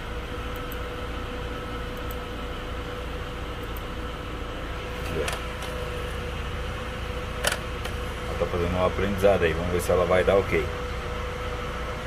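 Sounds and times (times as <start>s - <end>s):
mechanical hum: 0.0s - 12.0s
click: 0.5s - 0.8s, 2.0s - 2.2s, 3.6s - 3.9s.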